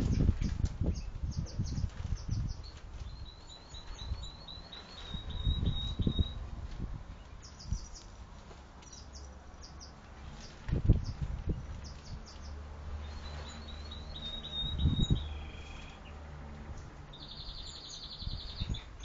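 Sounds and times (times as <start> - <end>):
songbird chirping: 0.0 - 6.5, 7.1 - 19.0
rustling: 6.4 - 9.2, 10.0 - 14.0.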